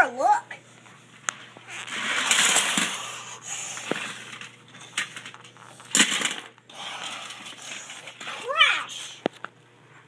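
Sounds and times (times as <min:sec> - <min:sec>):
toy train clattering into a crash: 0:01.9 - 0:03.2, 0:03.8 - 0:08.3.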